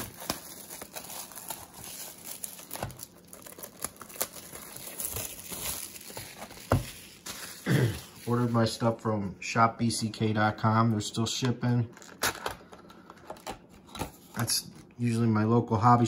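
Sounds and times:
plastic shrink-wrap tearing and crinkling: 0.0 - 8.8.

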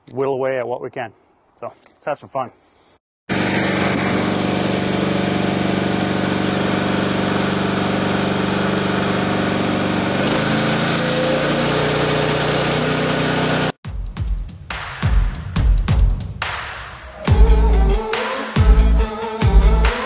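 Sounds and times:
small gasoline engine running: 3.3 - 13.8.

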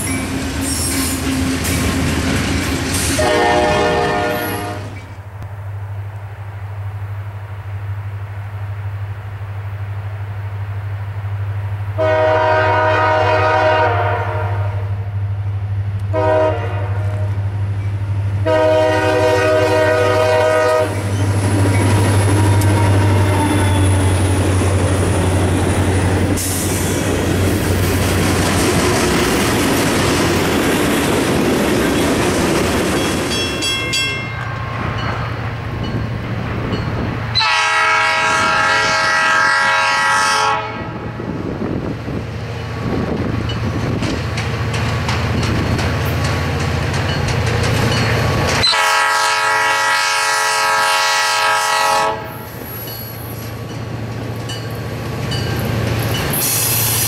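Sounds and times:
freight cars clickety-clack: 0.0 - 3.4, 20.9 - 37.1, 42.9 - 48.8
locomotive engine hum: 0.0 - 57.0
locomotive horn blasts: 3.2 - 5.0, 12.0 - 15.1, 16.1 - 17.4, 18.4 - 21.1, 22.3 - 24.1, 37.4 - 41.2, 48.6 - 52.6
wheels ringing: 32.9 - 37.1.

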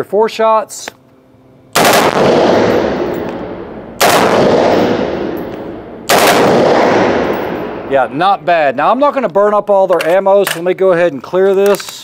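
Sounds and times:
rifle firing full-auto bursts: 1.8 - 3.4, 4.0 - 7.6.

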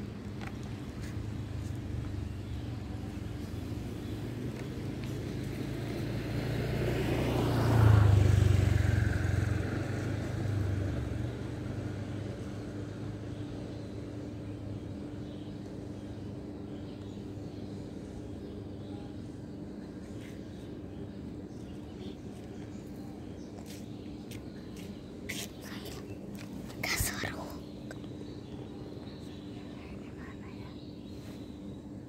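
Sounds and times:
low steady hum: 0.0 - 6.2, 8.6 - 32.0
vehicle passing by: 3.2 - 13.3.

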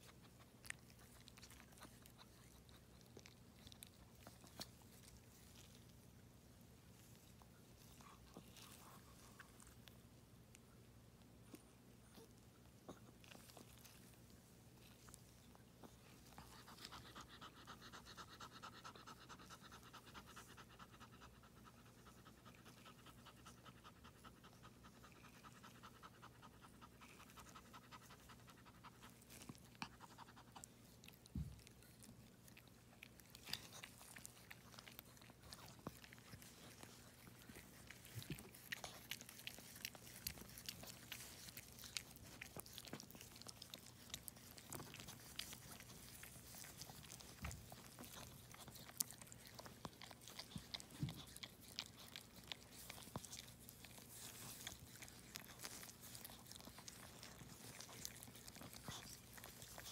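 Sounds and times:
dog panting: 15.7 - 59.9.

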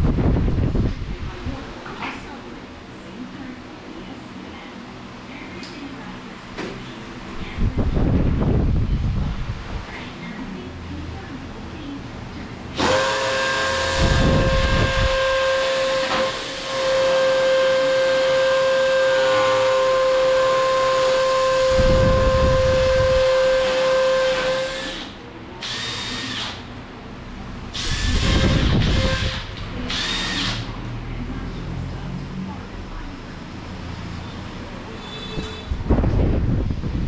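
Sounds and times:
cordless drill boring into wall: 12.8 - 26.7, 27.8 - 30.7.

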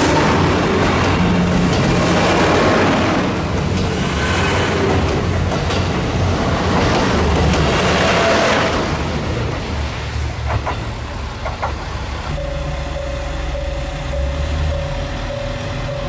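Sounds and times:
train rolling on rails: 0.0 - 16.0
wheel clacks over rail joints: 10.3 - 16.0
diesel engine drone: 11.0 - 16.0.

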